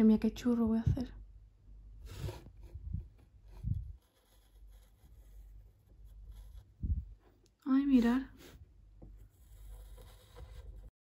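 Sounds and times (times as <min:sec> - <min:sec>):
hot pen tip scraping wood: 0:09.2 - 0:10.9.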